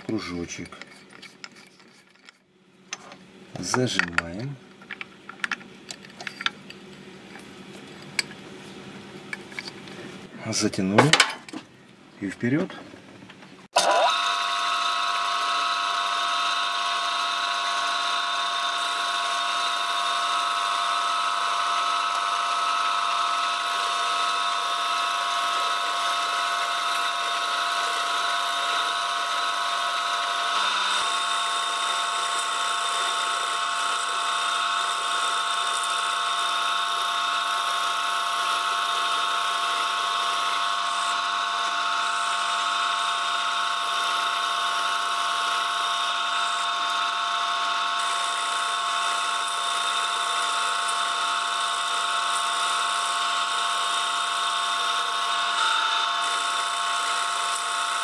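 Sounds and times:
cutter boring bamboo: 13.7s - 58.0s
lathe running with whine: 13.8s - 58.0s.

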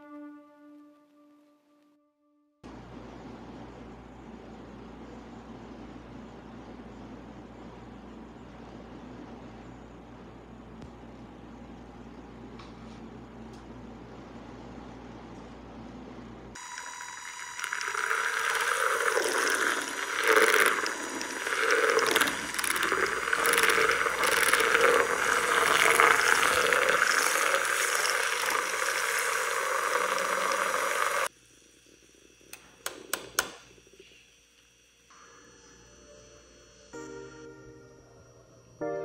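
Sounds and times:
milk frother motor whine: 16.5s - 38.9s
liquid churning: 17.1s - 31.3s.

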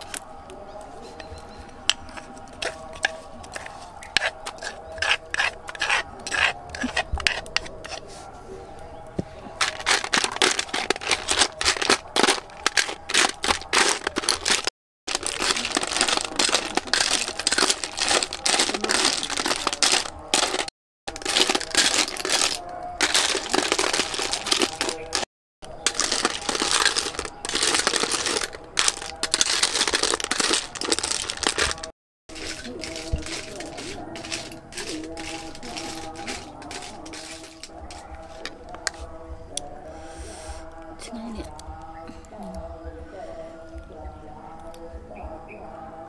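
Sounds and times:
metal spoon scraping: 1.1s - 8.2s, 9.6s - 39.7s
snail shells clattering on steel tray: 9.6s - 39.0s.

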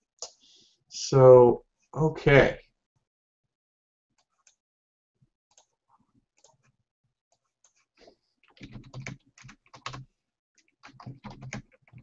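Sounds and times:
typing on computer keyboard: 8.4s - 12.0s.

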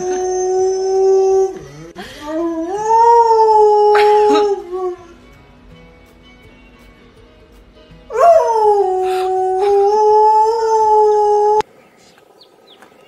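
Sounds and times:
dog howling: 0.0s - 5.2s, 8.1s - 11.7s.

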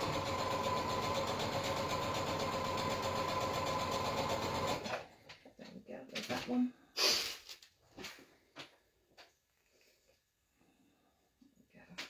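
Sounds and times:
electric sewing machine stitching: 0.0s - 5.1s.

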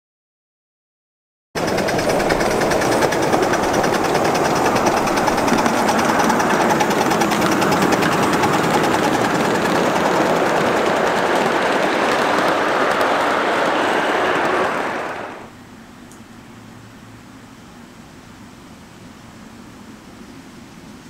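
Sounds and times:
steam locomotive rattling past: 1.6s - 15.6s.

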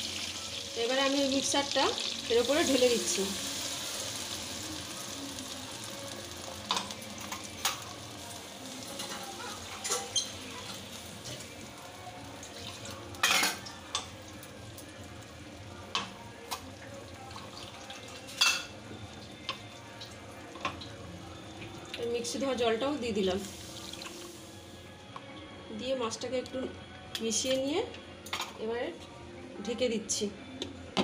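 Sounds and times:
gravy sizzling and bubbling: 0.0s - 24.8s.

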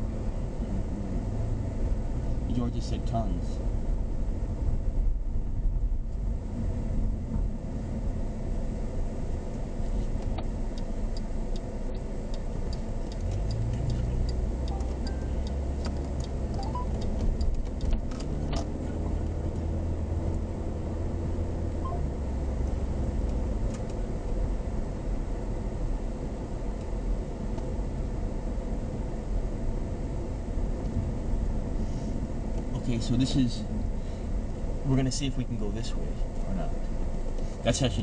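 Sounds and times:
engine and tyre rumble: 0.0s - 38.0s
turn signal ticking: 9.1s - 21.1s.

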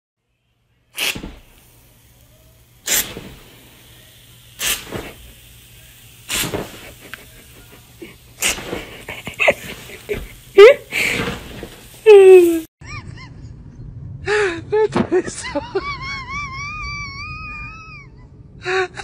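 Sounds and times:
aerosol can squirting foam: 1.0s - 12.7s.

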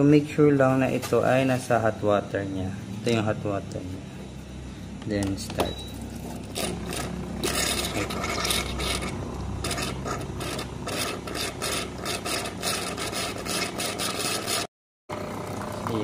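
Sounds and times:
espresso machine low hum: 0.0s - 14.2s, 15.1s - 16.0s
water sputtering from espresso wand: 6.5s - 14.6s.

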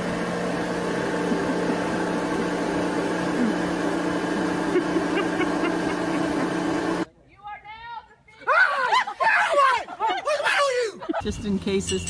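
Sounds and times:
electric hum of machinery: 0.0s - 7.1s.

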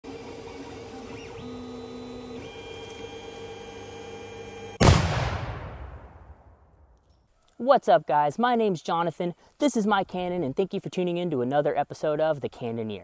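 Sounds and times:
printer stepper motors whining: 0.0s - 4.8s
loud cannon bang: 4.8s - 6.7s.

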